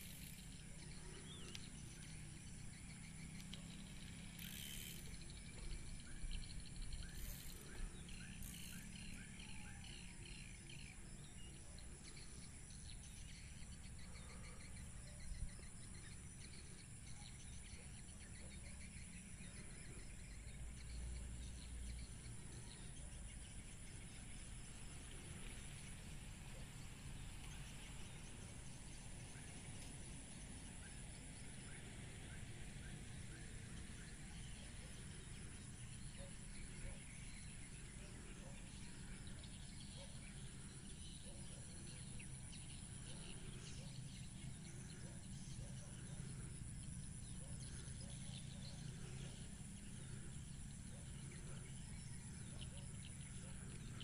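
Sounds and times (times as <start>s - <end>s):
high-pitched insect drone: 0.0s - 11.2s
birds chirping: 0.0s - 54.0s.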